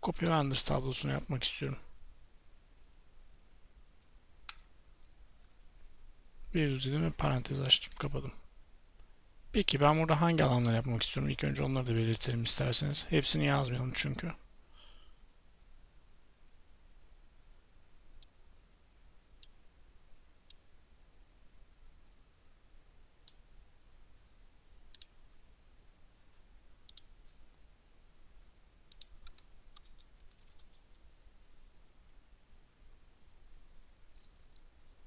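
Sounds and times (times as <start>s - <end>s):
computer mouse clicks: 4.0s - 5.8s, 10.4s - 10.8s, 23.2s - 23.5s, 24.9s - 25.2s, 26.9s - 27.2s, 28.9s - 31.0s, 34.1s - 35.0s.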